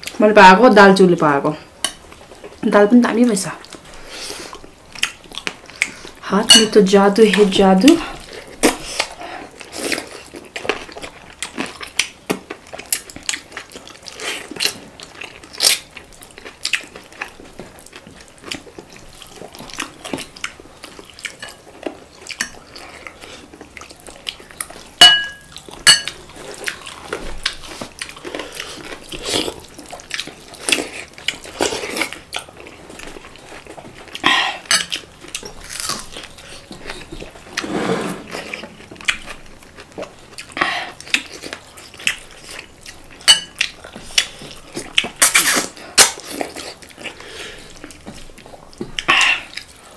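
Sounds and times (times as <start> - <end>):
plates and cutlery clinking: 25.0 - 26.2, 43.2 - 43.6.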